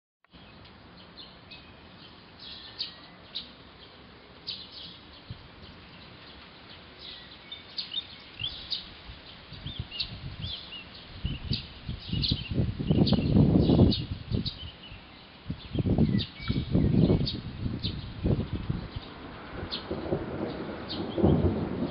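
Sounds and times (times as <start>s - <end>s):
small birds chirping: 0.3s - 21.9s
wind buffeting microphone: 5.1s - 5.9s, 7.9s - 21.9s.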